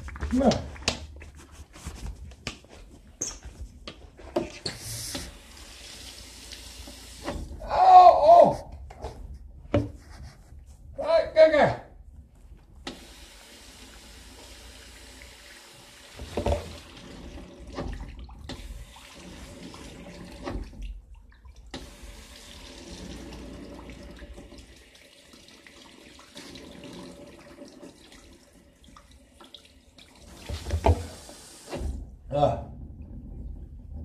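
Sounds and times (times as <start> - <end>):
tap water running into sink: 3.3 - 7.6, 12.8 - 32.0.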